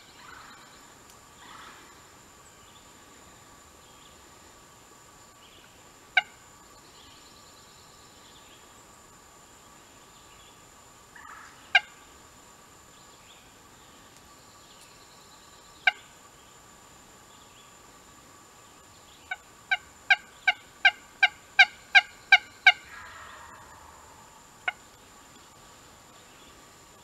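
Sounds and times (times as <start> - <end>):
turkey gobble: 0.2 - 0.6, 1.4 - 1.9, 11.2 - 12.0, 19.3 - 24.9
turkey call clucks and yelps: 11.2 - 12.0, 15.8 - 16.1, 19.3 - 24.9.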